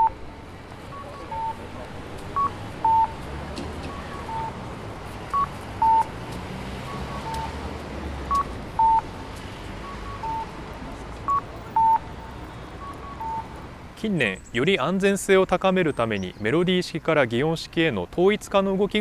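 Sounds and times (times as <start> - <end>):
fainter answering electronic call: 0.9 - 1.6
electronic cuckoo call: 1.0 - 1.6, 3.9 - 4.6, 6.9 - 7.6, 9.8 - 10.5.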